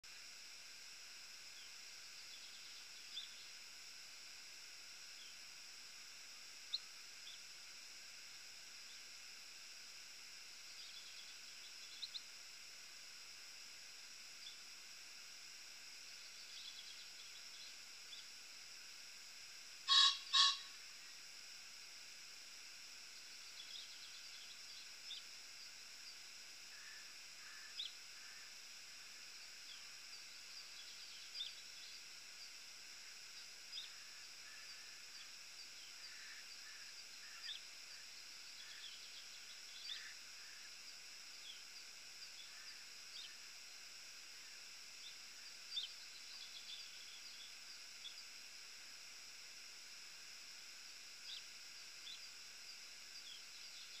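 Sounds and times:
steady hiss: 0.0 - 54.0
high bird chirps: 19.9 - 20.6
bird twittering: 19.9 - 20.7.

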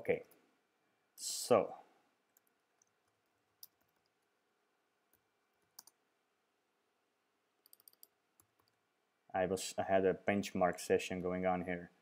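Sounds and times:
keyboard and mouse clicks: 2.3 - 4.3, 5.1 - 6.0, 7.6 - 8.8.

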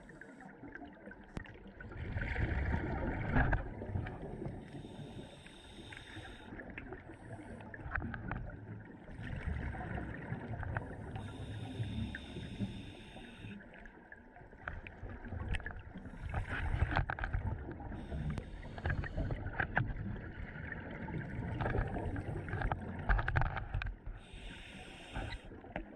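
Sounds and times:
regulator inhalation hiss: 4.6 - 6.6, 11.1 - 13.6, 24.2 - 25.5.

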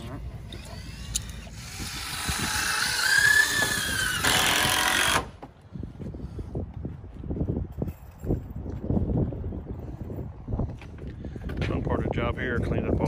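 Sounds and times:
power tool whining: 0.0 - 5.4.

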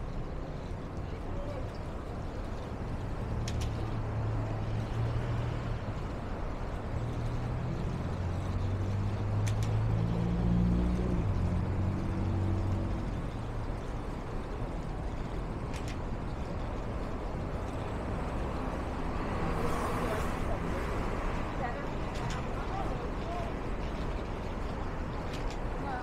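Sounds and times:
heavy vehicle engines droning: 0.0 - 26.0
traffic noise: 0.0 - 26.0.

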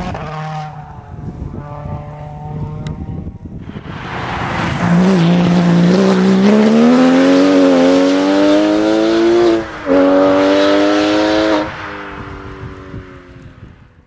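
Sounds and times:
rally car engine accelerating: 3.6 - 11.8.

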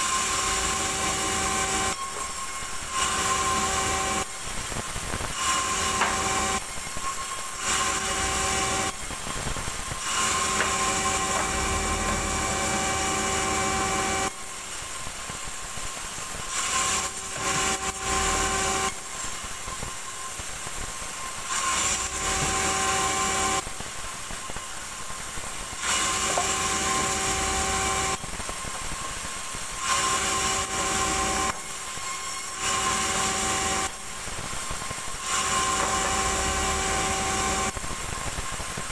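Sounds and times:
saw blade whining through log: 0.0 - 4.4, 5.3 - 9.1, 9.9 - 14.6, 16.5 - 19.4, 21.4 - 23.6, 25.8 - 28.8, 29.8 - 34.0, 35.2 - 37.8
band sawmill running: 0.0 - 20.3, 21.1 - 23.7, 25.6 - 37.9.

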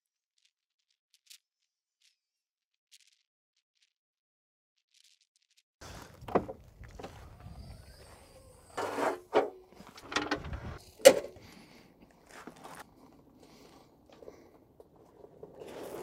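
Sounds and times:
hard objects clunking and rattling: 6.2 - 7.2, 8.8 - 11.7.

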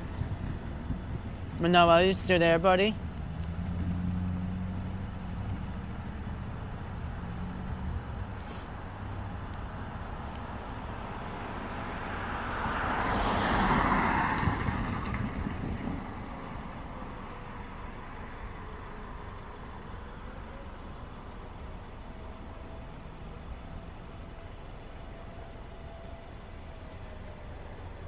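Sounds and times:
car driving past: 3.2 - 9.1, 11.0 - 19.7.

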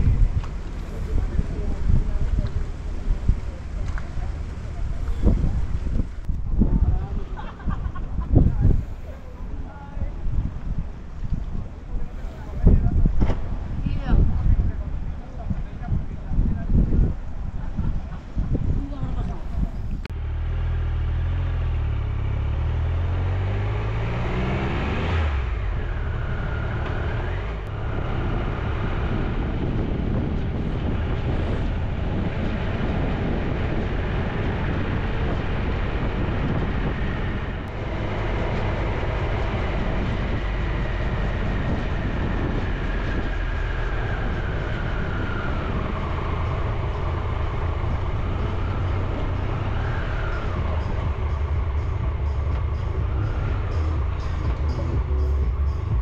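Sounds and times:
wind rush: 0.0 - 20.2, 20.8 - 56.0
motorcycle engine: 20.1 - 56.0.

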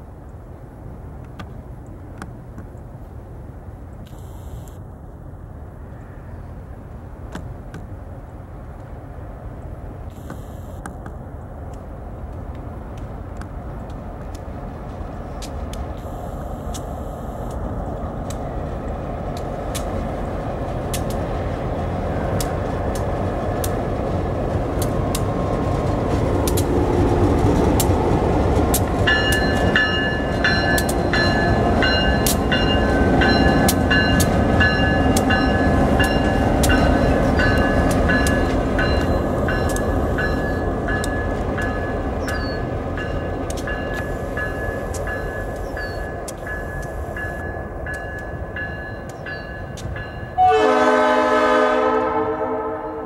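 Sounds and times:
locomotive engines: 0.2 - 53.0
wheels clicking on rails: 7.3 - 50.4
bell ringing: 29.1 - 42.0.

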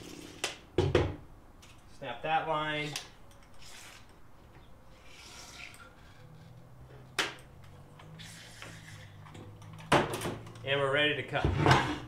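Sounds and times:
faint rubbing: 4.8 - 6.9, 8.1 - 9.2.

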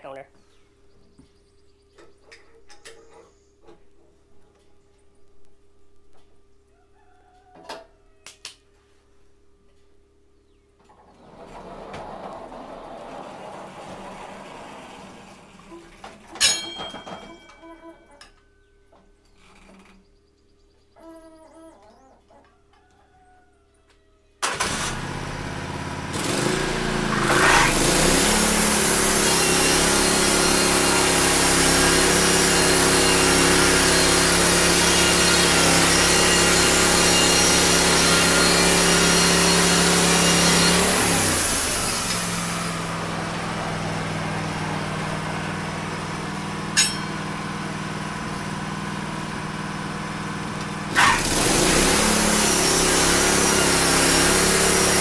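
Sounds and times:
sawmill engine running: 11.2 - 17.6, 24.4 - 55.0
band saw cutting a log: 24.5 - 55.0.

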